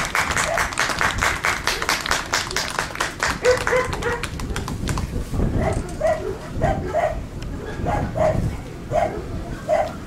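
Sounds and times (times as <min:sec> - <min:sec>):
spectators clapping in rhythm: 0:00.0 - 0:05.1
dog barking: 0:03.4 - 0:04.7, 0:05.5 - 0:10.0.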